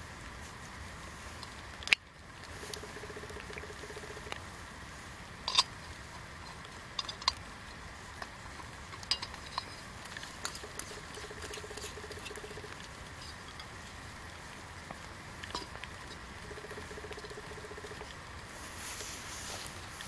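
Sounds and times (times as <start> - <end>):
small metal clicks and taps: 5.5 - 5.7, 6.5 - 7.4, 8.9 - 13.7.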